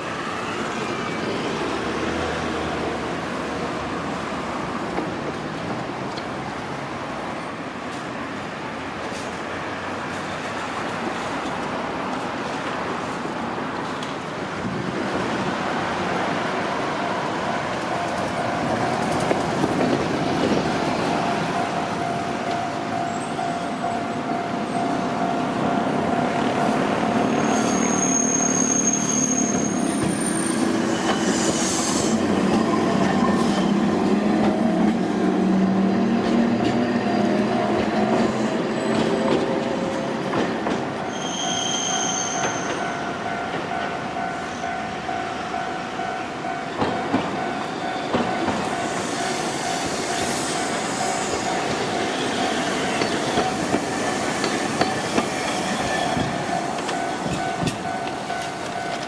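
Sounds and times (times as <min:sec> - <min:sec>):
tram wheels squealing on rails: 0:00.0 - 0:08.1, 0:15.2 - 0:59.0
tram rumbling past: 0:00.0 - 0:59.0
level crossing warning bell: 0:20.6 - 0:27.9, 0:41.8 - 0:49.9, 0:56.2 - 0:59.0.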